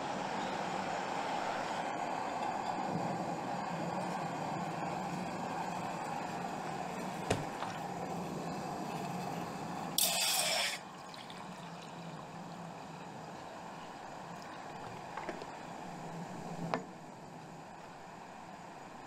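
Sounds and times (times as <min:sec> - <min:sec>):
steady background noise: 0:00.0 - 0:19.0
water pouring into pot: 0:10.0 - 0:12.1.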